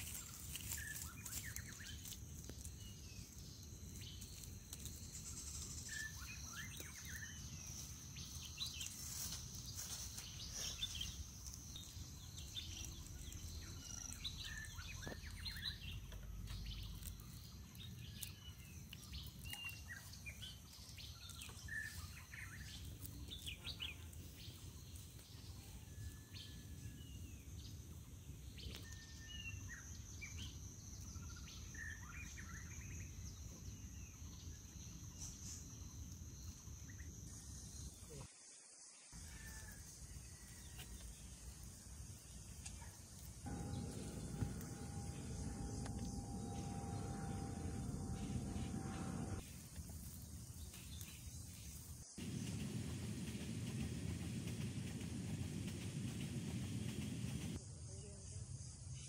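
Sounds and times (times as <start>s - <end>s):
small birds chirping: 0.0s - 38.2s, 40.4s - 49.4s, 50.0s - 57.6s
high-pitched insect drone: 43.5s - 49.4s.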